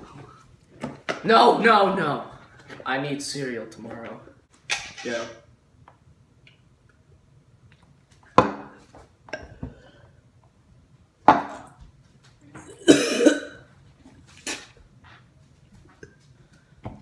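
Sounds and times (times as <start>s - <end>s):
boy coughing and gagging: 12.7s - 13.7s.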